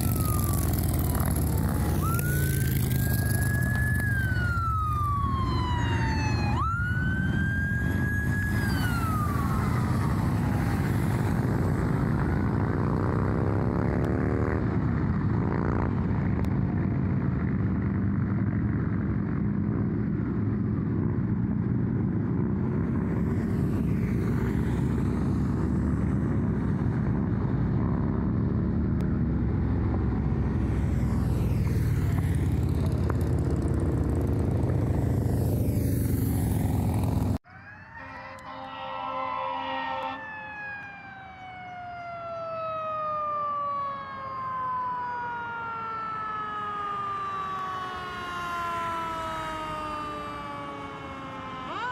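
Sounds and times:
siren wailing: 0.0 - 15.8, 30.5 - 51.9
low road rumble: 0.0 - 51.9
vehicles driving past: 0.0 - 51.9.

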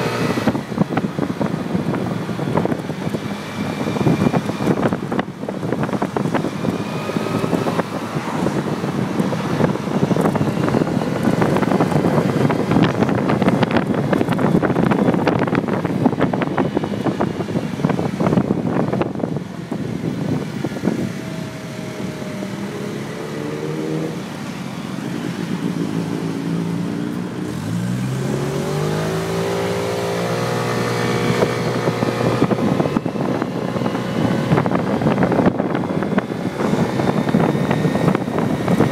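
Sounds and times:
moped engine accelerating: 0.0 - 38.9
wind buffeting microphone: 0.0 - 38.9.

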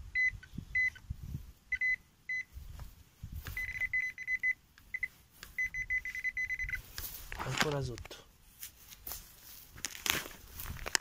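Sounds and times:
metal detector beeping: 0.1 - 1.0, 1.7 - 2.6, 3.5 - 6.9
digging in soil: 4.8 - 11.0.

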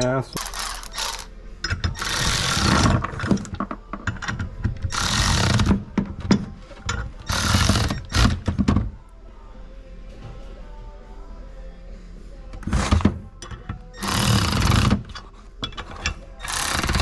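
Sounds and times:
rapid mechanical clicking and rattling: 16.4 - 17.0.

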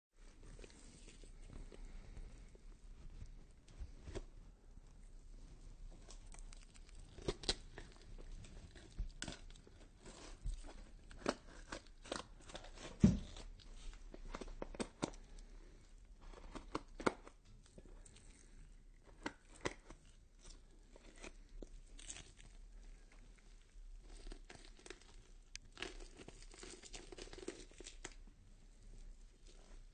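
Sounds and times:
skin tearing with sharp cracks: 6.0 - 13.6, 24.1 - 28.2.

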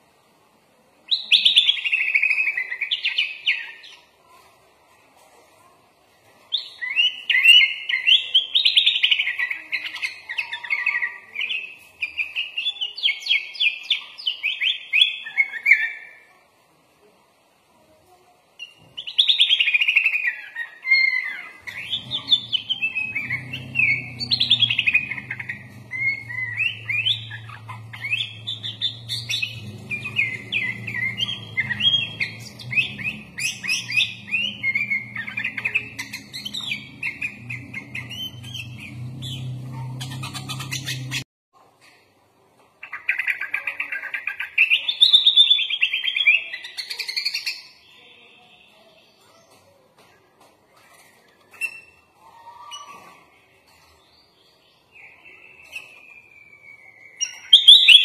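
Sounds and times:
bird singing chattering song: 1.1 - 4.1, 6.5 - 16.2, 18.6 - 41.3, 42.8 - 49.6, 50.9 - 58.0
steady low hum: 21.6 - 41.3.

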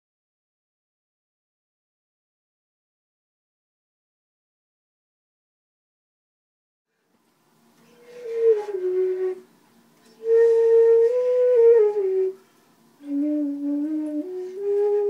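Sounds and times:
breathy flute phrases: 7.8 - 15.0.

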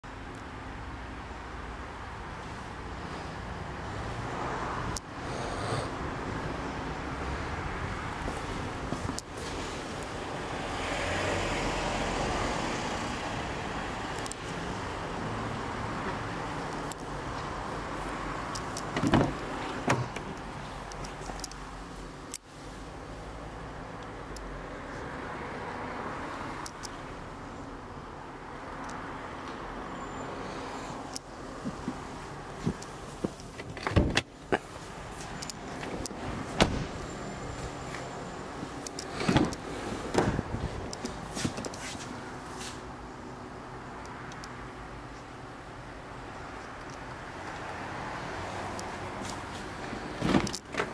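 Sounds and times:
car door clunks: 18.9 - 20.3, 32.6 - 34.3, 36.6 - 37.0, 39.2 - 40.5.

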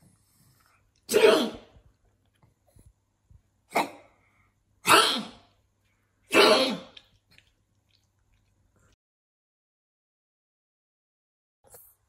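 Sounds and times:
dog sneezing: 1.1 - 1.7, 4.8 - 5.5, 6.3 - 7.0.

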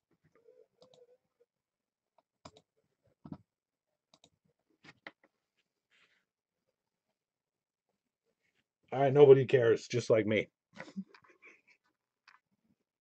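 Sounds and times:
faint irregular clicks: 4.1 - 5.3.

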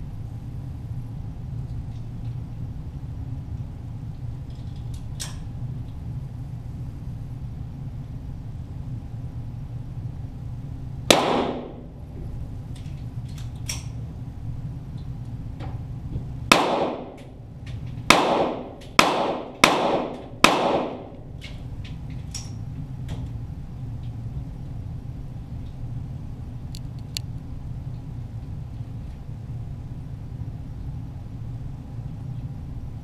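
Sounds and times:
steady low hum: 0.0 - 33.0
pistol shots echoing: 11.1 - 11.9, 16.5 - 17.3, 18.1 - 21.2.

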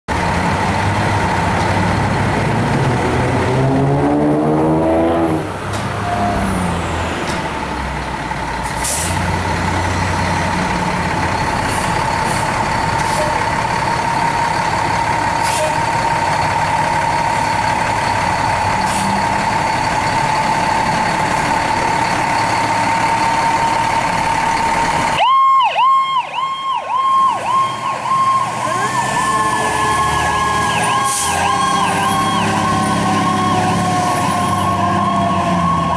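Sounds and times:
fire engine diesel running: 0.1 - 4.5, 5.2 - 35.9
air brake hisses: 8.7 - 9.2, 15.4 - 15.8
electronic siren yelping: 25.2 - 35.9.

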